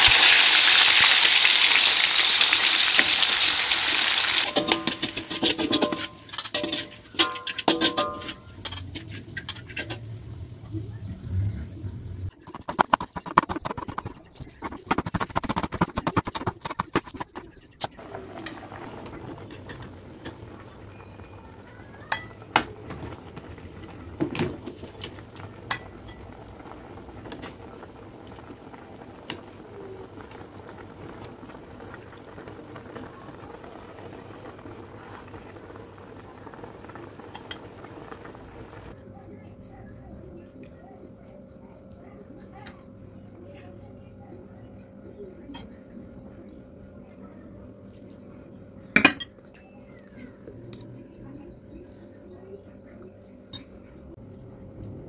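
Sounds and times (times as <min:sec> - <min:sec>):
hot oil sizzling in wok: 0:00.0 - 0:10.6, 0:25.5 - 0:39.0
ladle clinking against pot: 0:04.5 - 0:10.0.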